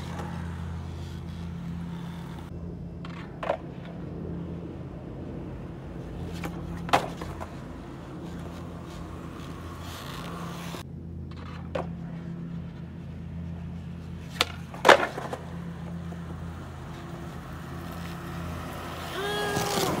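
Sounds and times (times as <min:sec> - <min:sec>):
skateboard clacking on concrete: 0:14.3 - 0:16.3, 0:19.0 - 0:20.0.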